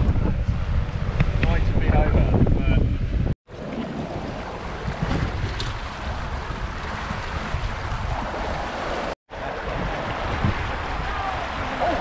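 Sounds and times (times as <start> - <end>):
wind buffeting microphone: 0.0 - 12.0
water rushing along hull: 3.0 - 12.0.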